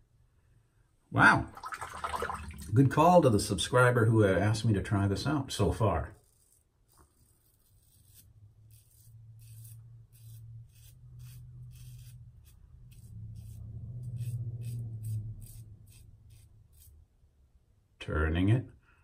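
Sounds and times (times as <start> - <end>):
razor scraping stubble: 5.6 - 17.0.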